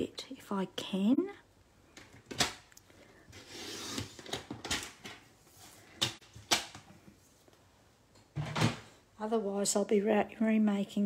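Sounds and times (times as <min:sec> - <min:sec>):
soft sliding scrape: 0:03.3 - 0:04.2.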